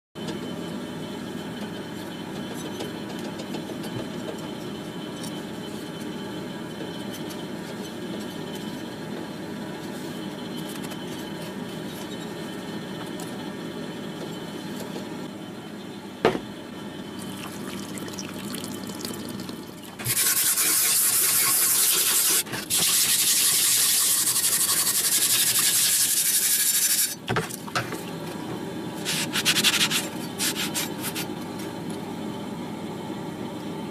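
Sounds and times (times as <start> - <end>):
cloth rubbing on wet blade: 20.0 - 27.1.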